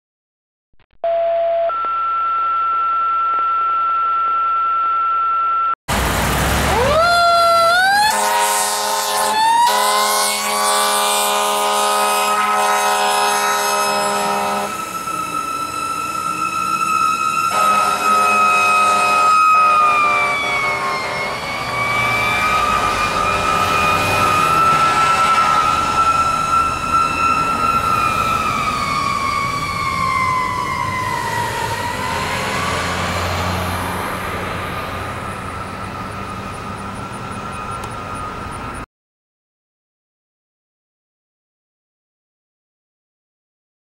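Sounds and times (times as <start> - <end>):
two-tone dispatch page tones: 1.0 - 5.8
fire engine siren wailing: 1.7 - 38.9
steady horn blast: 8.0 - 14.8, 17.5 - 26.2.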